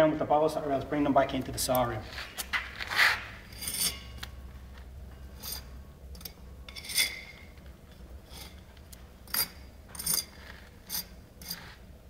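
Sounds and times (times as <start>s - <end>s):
metal blade scraping brick: 2.8s - 4.2s, 5.4s - 7.5s, 8.3s - 8.6s, 9.3s - 11.8s.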